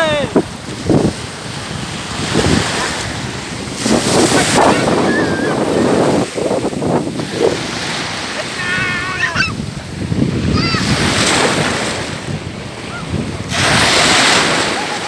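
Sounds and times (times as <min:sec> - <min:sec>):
waves washing in shallow water: 0:00.0 - 0:15.0
wind buffeting microphone: 0:00.0 - 0:15.0.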